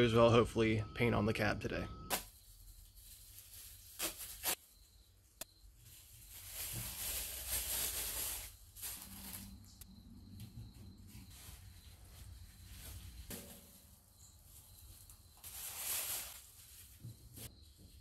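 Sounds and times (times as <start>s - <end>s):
plastic sheeting rustling: 2.1s - 4.6s, 5.8s - 9.7s, 11.3s - 17.5s.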